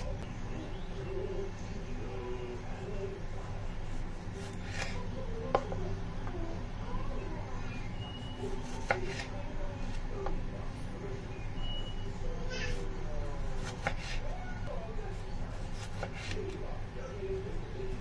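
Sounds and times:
knife slicing tomato: 0:03.8 - 0:05.8, 0:08.4 - 0:10.4, 0:12.7 - 0:14.4, 0:15.1 - 0:16.6.

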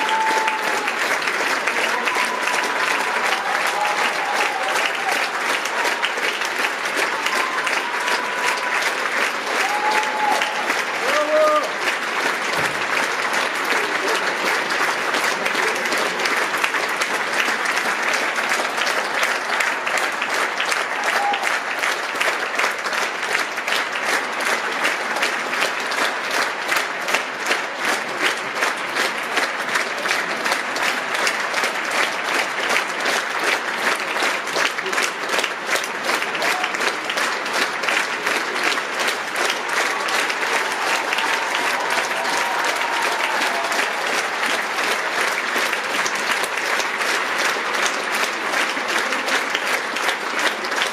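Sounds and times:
audience applauding: 0:00.0 - 0:50.9.

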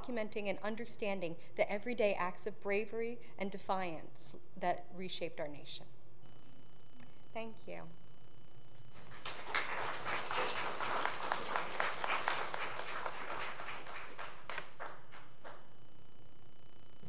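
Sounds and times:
audience applauding: 0:08.9 - 0:15.7.

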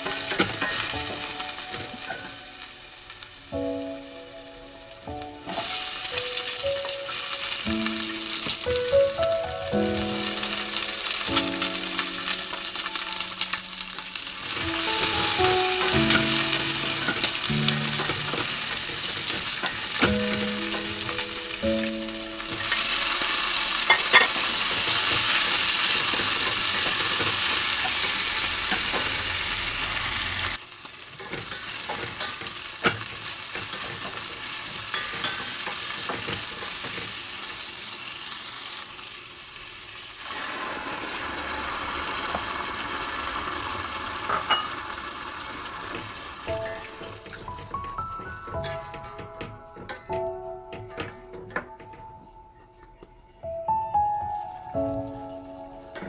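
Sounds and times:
soft melody: 0:00.0 - 0:29.2, 0:46.4 - 0:56.0
vegetables sizzling in hot oil: 0:00.0 - 0:49.9, 0:54.6 - 0:56.0.

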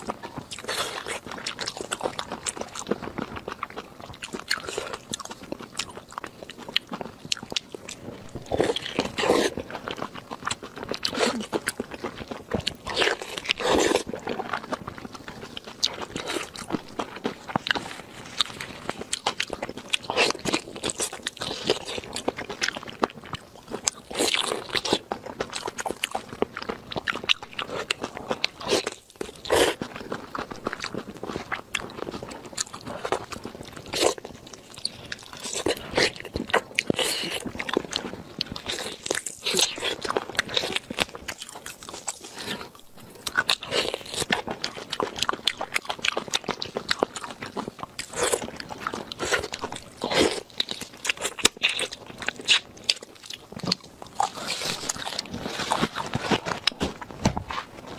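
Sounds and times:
biting and crunching: 0:00.0 - 0:57.9
meat tearing: 0:32.4 - 0:57.8.

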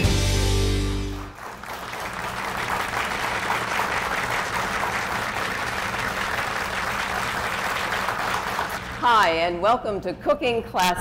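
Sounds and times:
theme music: 0:00.0 - 0:01.4
audience applause: 0:00.9 - 0:09.0.

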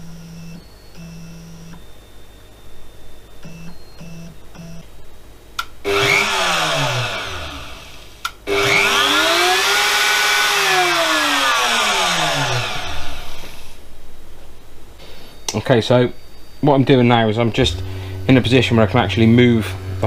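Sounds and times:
stepper motors whining: 0:05.8 - 0:13.8
click: 0:08.2 - 0:08.4.

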